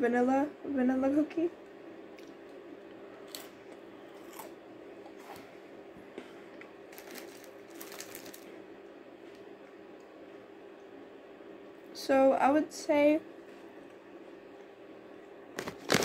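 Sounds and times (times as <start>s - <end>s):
steady low hum: 0.0s - 16.0s
biscuit crunching: 6.5s - 9.8s, 15.6s - 16.0s.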